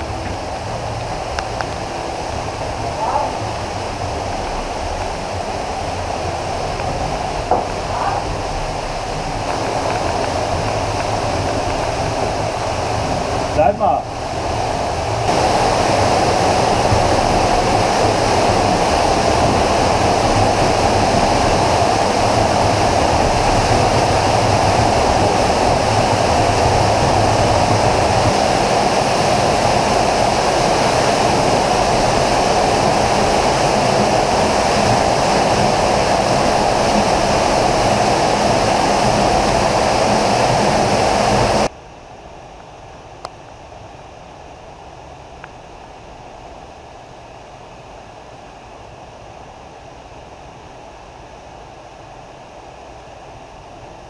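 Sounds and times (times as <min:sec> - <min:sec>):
waterfall rushing: 0:00.0 - 0:41.7.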